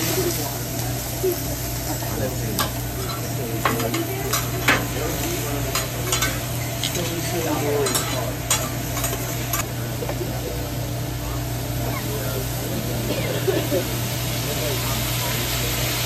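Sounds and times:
vegetables sizzling on griddle: 0:00.0 - 0:16.0
metal utensils scraping griddle: 0:02.3 - 0:09.6.

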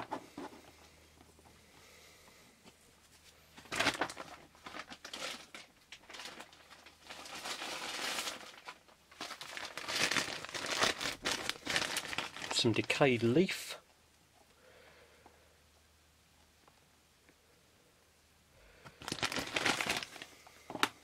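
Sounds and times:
plastic bag rustling: 0:03.0 - 0:13.2, 0:19.0 - 0:21.0.

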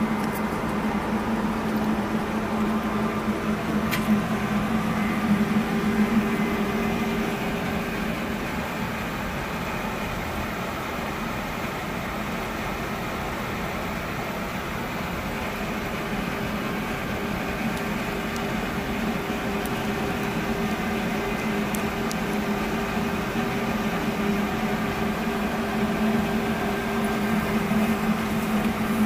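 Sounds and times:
low droning tone: 0:00.0 - 0:09.2
ventilation fans humming: 0:00.0 - 0:29.0.

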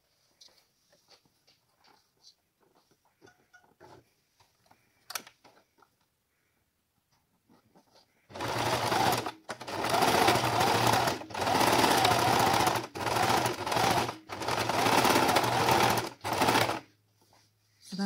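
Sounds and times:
sewing machine stitching: 0:08.3 - 0:16.9.

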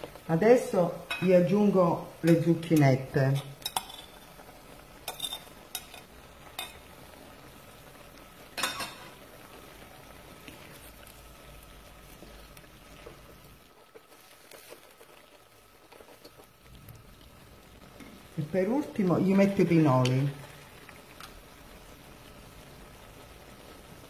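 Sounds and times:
food sizzling in a frying pan: 0:00.0 - 0:24.0
wooden spatula stirring: 0:12.0 - 0:16.6.

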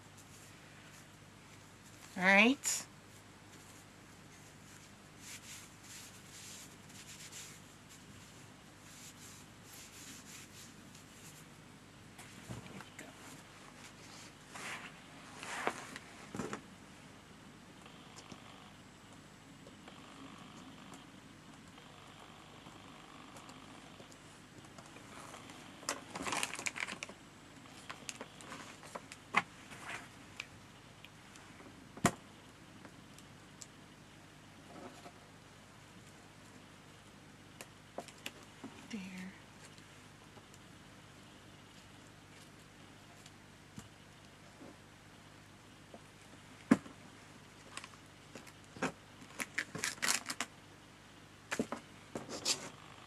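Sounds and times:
faint rubbing strokes on card: 0:03.1 - 0:11.6.

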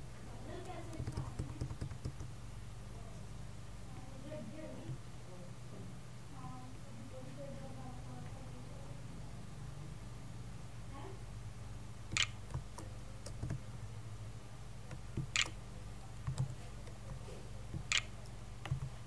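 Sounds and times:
low steady hum: 0:00.0 - 0:19.0
mouse clicks: 0:14.9 - 0:15.6, 0:17.7 - 0:18.9.

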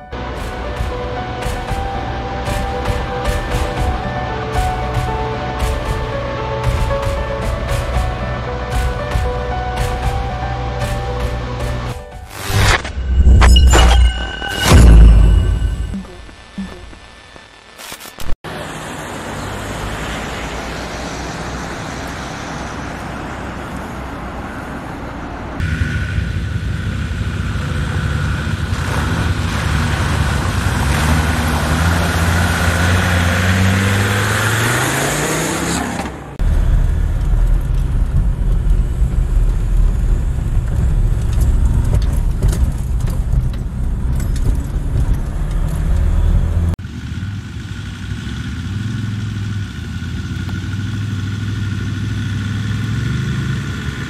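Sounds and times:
diesel engine running under load: 0:36.4 - 0:54.0.

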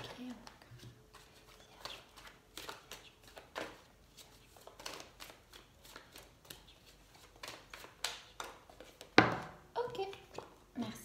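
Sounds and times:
cards being shuffled: 0:00.0 - 0:10.6.

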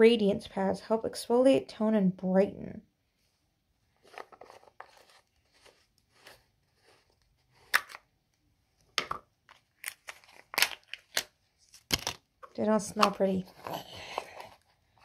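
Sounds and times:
plastic lid rustling and scraping: 0:03.9 - 0:08.0
seal clicking and crinkling: 0:09.5 - 0:12.3.

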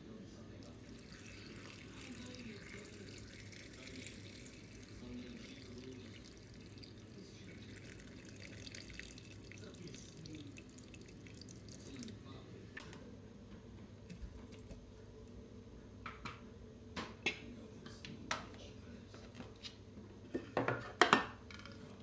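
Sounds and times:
boiling water pouring into bowl: 0:00.6 - 0:12.3.

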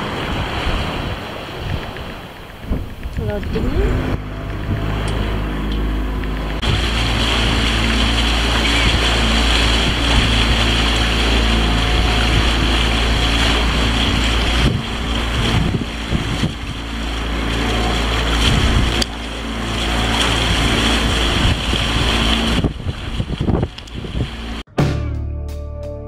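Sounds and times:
wind buffeting microphone: 0:00.0 - 0:24.6
boat motor running: 0:00.0 - 0:24.7
water rushing along hull: 0:00.0 - 0:24.7.

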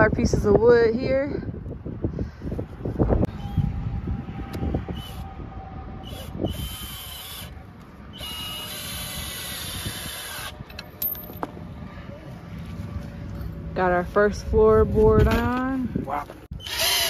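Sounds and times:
cordless drill driving screws: 0:06.0 - 0:10.7, 0:16.6 - 0:17.0.

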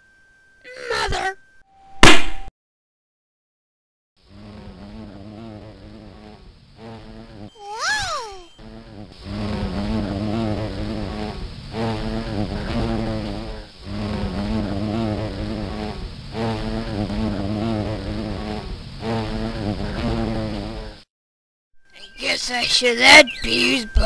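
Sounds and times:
cartoon bee buzzing: 0:04.3 - 0:21.0.

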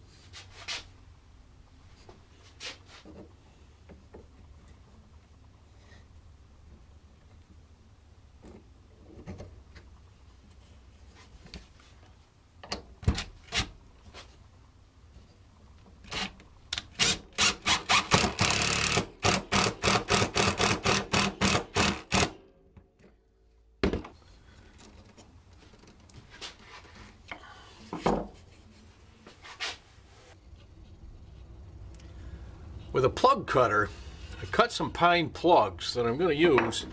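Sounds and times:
drill motor running: 0:17.0 - 0:22.3.

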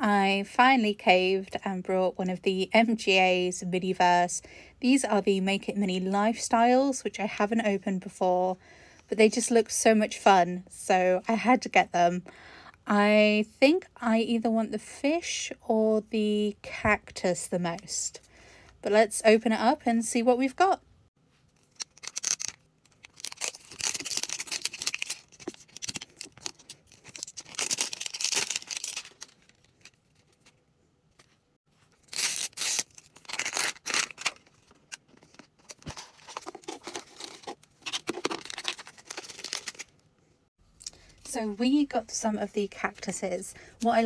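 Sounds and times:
packaging crinkling and rustling: 0:21.5 - 0:30.6, 0:31.2 - 0:40.0
plastic shrink-wrap tearing: 0:21.6 - 0:30.0, 0:32.0 - 0:39.9.

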